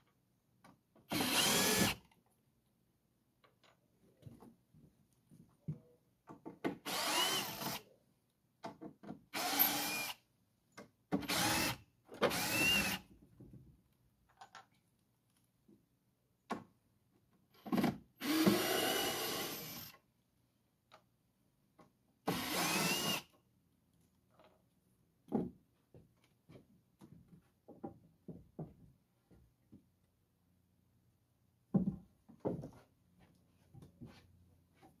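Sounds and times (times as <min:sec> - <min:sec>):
power drill running in bursts: 0:06.9 - 0:07.7, 0:22.3 - 0:23.2.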